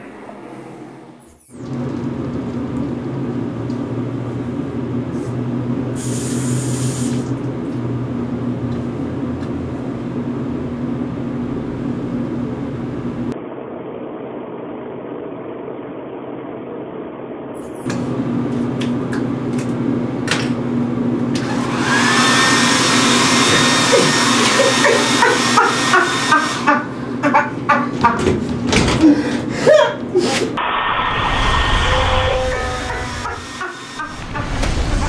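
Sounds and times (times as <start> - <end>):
hissing rush of air: 6.0 - 7.3, 30.6 - 35.0
hair dryer running: 21.3 - 27.5, 32.5 - 34.3.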